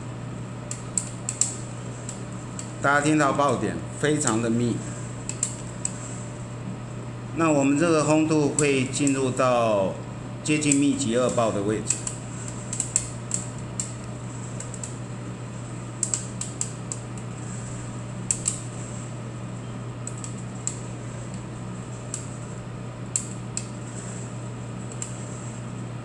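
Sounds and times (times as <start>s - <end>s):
roaster hum and hiss: 0.0s - 26.0s.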